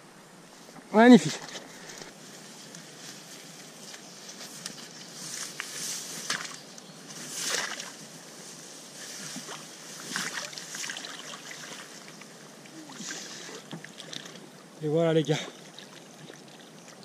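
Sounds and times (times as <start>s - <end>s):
water splashing and sloshing: 7.3s - 8.0s, 9.0s - 14.7s, 15.3s - 17.0s.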